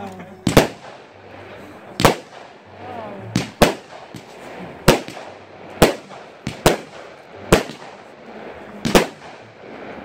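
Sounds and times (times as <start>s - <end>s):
firework bangs: 0.4s - 10.0s.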